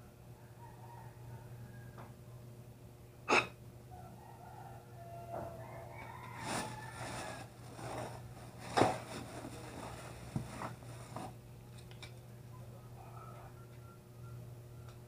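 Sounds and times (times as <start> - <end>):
light knocks and scrapes: 6.0 - 11.4.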